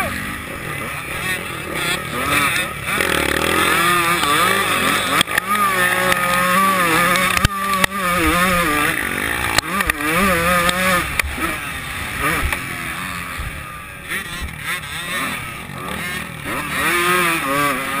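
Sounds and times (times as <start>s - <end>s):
motocross bike engine revving: 0.0s - 18.0s
sharp clicks: 4.2s - 6.4s, 7.0s - 8.0s, 9.4s - 11.4s.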